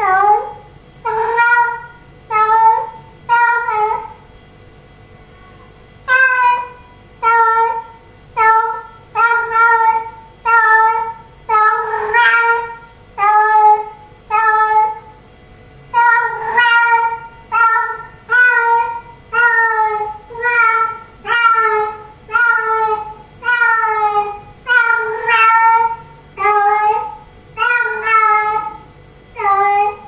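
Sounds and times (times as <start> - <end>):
cat meowing loudly: 6.1 - 15.0, 16.0 - 28.8.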